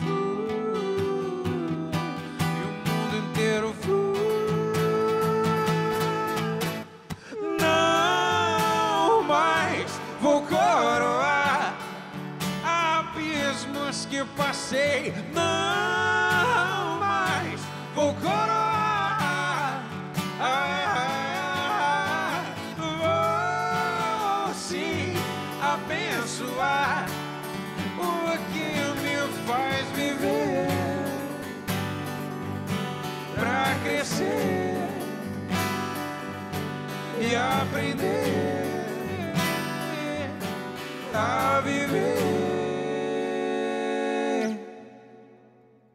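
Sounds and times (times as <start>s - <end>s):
man singing: 0.0s - 32.3s, 33.1s - 35.8s, 36.8s - 45.4s
acoustic guitars strumming: 0.0s - 45.3s.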